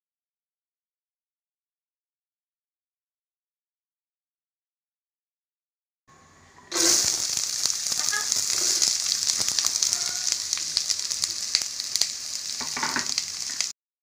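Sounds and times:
onions sizzling in hot oil: 6.7 - 13.8.

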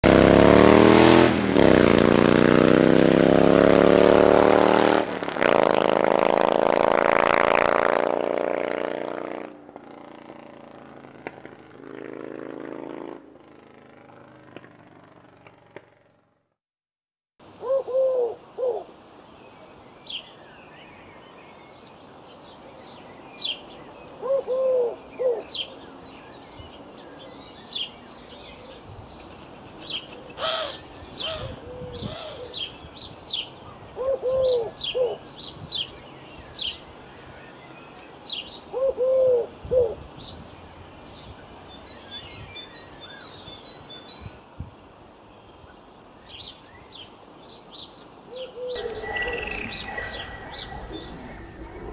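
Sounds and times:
birds chirping: 17.6 - 51.9
low bird call: 48.3 - 51.9.

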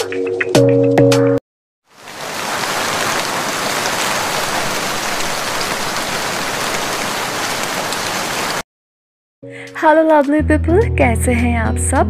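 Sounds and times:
heavy rain falling: 1.9 - 8.6.

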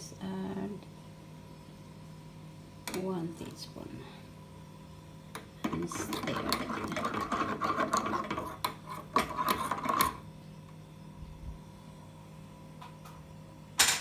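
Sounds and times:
spoon scraping and clinking in pot: 5.7 - 10.2.

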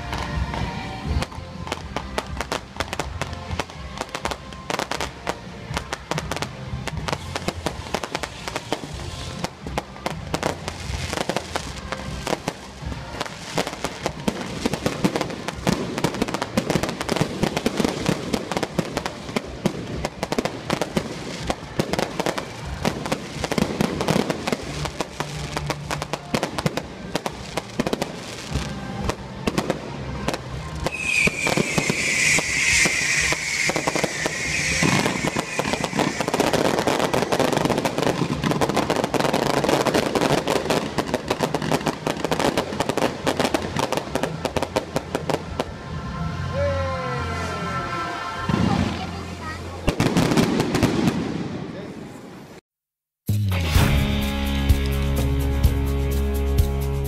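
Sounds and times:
music playing: 0.0 - 49.7, 53.3 - 57.0
fireworks crackling and banging: 0.0 - 52.6
loud high hiss: 30.7 - 40.7.

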